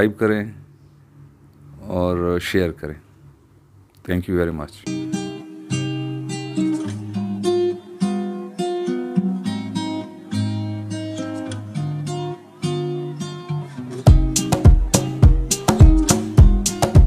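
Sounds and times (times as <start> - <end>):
acoustic guitar strumming: 4.8 - 17.0.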